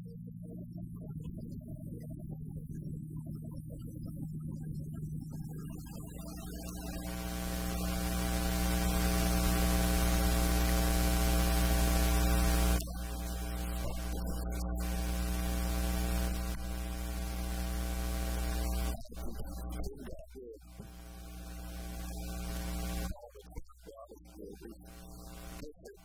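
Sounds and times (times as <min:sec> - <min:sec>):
electrical mains hum with hiss: 0:05.7 - 0:20.0, 0:20.7 - 0:23.2, 0:24.7 - 0:26.0.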